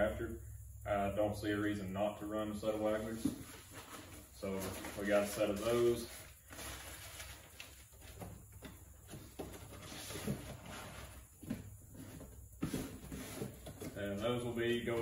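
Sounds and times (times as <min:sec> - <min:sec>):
cardboard box rustling: 0:03.2 - 0:14.2.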